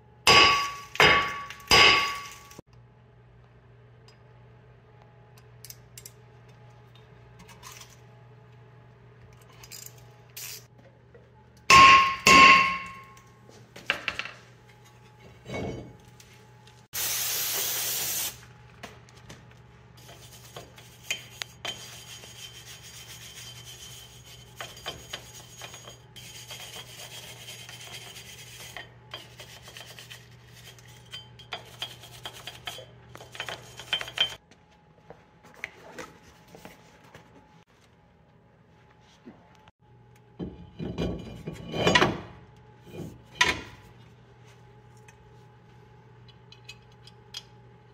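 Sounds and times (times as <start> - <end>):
mallet striking metal rotor: 0.3 - 2.6, 11.7 - 13.2.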